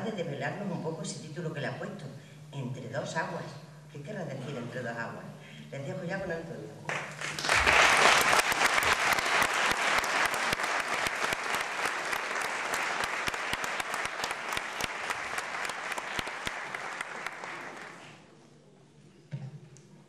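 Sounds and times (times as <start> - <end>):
audience applauding: 6.9 - 18.3.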